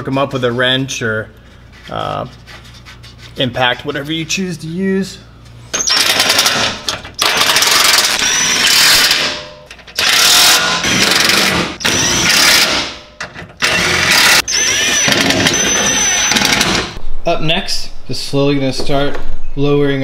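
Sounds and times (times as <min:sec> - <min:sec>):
impact driver hammering: 0:10.0 - 0:17.0.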